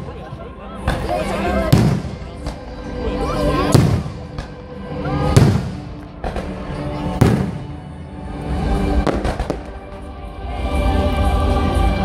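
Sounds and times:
music playing: 0.0s - 12.0s
fireworks banging: 1.7s - 2.6s, 3.7s - 4.6s, 5.3s - 6.6s, 7.2s - 7.9s, 9.0s - 10.1s.

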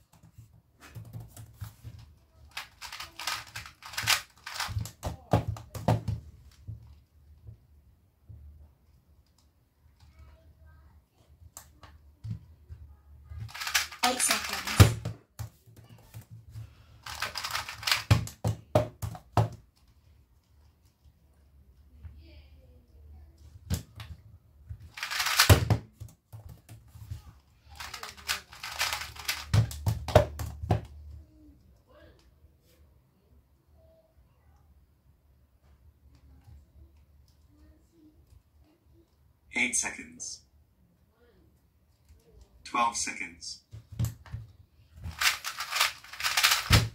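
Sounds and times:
puzzle cube clicking: 2.5s - 5.1s, 13.5s - 15.1s, 17.0s - 18.4s, 24.9s - 25.8s, 27.8s - 30.5s, 45.1s - 46.9s
cube knocking on surface: 3.6s - 6.3s, 17.1s - 19.6s, 24.8s - 26.8s, 28.7s - 31.0s.

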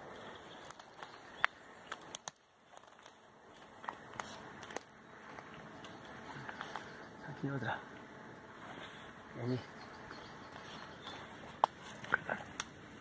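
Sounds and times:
dry twigs crackling and snapping: 0.0s - 7.3s, 9.9s - 12.9s.

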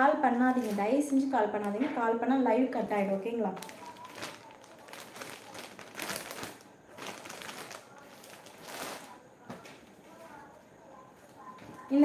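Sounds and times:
plastic bag crinkling: 0.3s - 1.9s, 2.8s - 9.6s.

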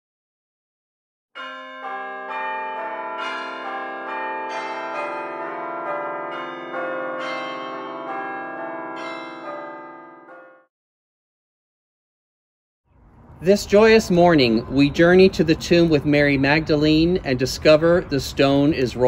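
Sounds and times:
church bells ringing: 1.4s - 10.7s, 13.2s - 19.0s.

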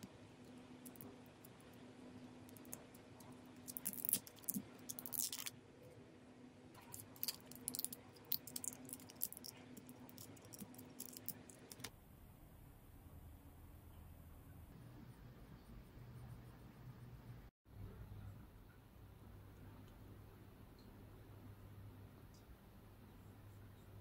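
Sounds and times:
faint steady hum: 0.0s - 24.0s
pencil cap clicks and crinkles: 0.8s - 1.7s, 2.5s - 5.5s, 6.8s - 11.9s.

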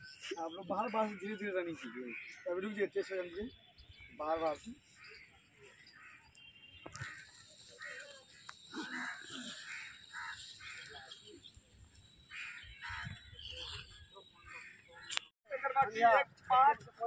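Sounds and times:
crows cawing: 6.9s - 11.3s, 12.3s - 13.6s, 14.4s - 15.1s.

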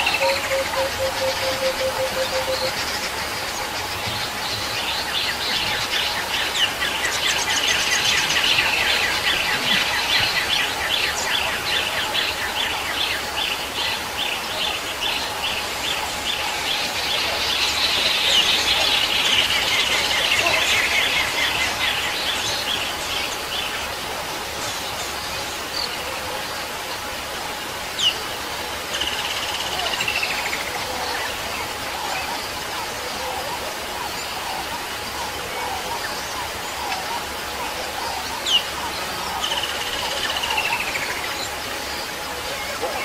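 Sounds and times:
steady background hiss: 0.0s - 43.0s.

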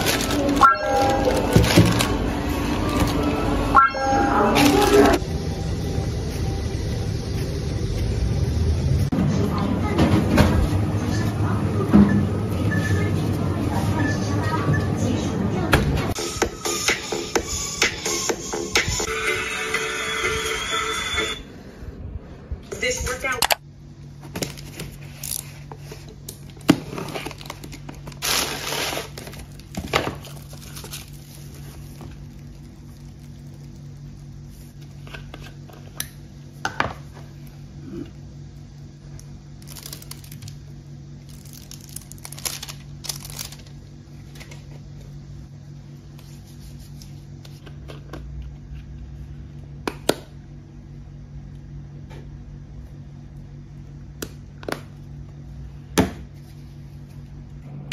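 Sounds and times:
packaging tearing and crinkling: 0.0s - 2.3s, 26.3s - 34.0s, 39.6s - 40.6s, 41.2s - 43.8s
steady low hum: 0.0s - 57.9s.

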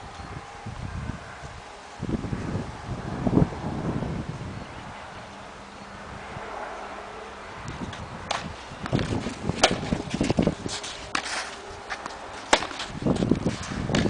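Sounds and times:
tennis ball struck by racket: 8.3s - 14.0s
footsteps scuffing on clay: 8.8s - 14.0s.

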